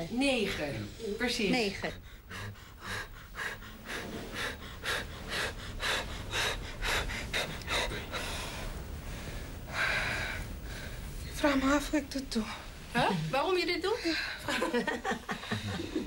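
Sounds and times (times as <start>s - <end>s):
woman breathing hard: 2.0s - 11.2s.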